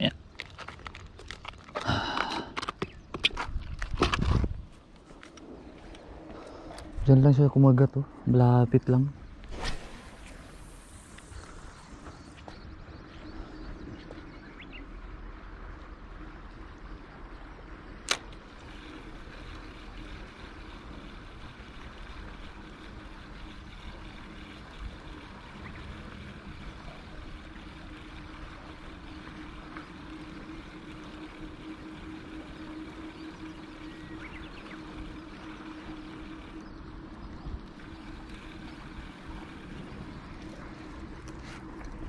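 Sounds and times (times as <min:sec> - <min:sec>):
water and wind noise: 0:00.0 - 0:42.0
low hum: 0:00.2 - 0:42.0
sharp click: 0:18.0 - 0:18.4.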